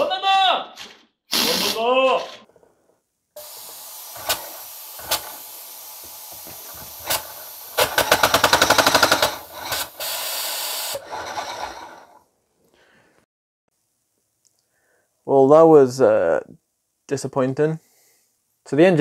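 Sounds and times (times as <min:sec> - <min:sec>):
compressed air hissing: 0:01.3 - 0:01.9, 0:03.4 - 0:12.2.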